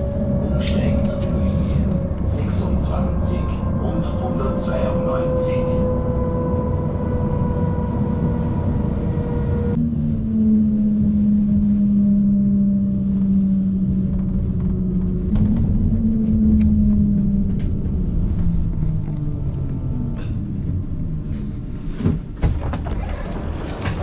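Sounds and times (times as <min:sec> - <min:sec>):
tram rumbling on rails: 0:00.0 - 0:24.0.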